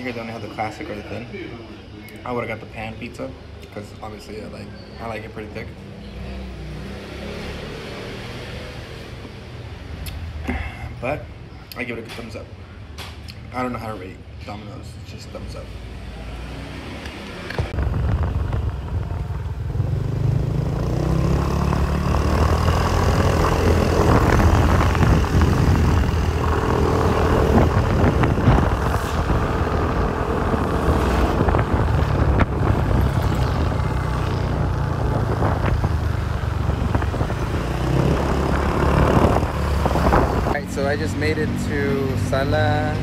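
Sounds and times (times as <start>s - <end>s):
road and wind noise: 0.0s - 43.0s
motorcycle engine rumble: 17.0s - 43.0s.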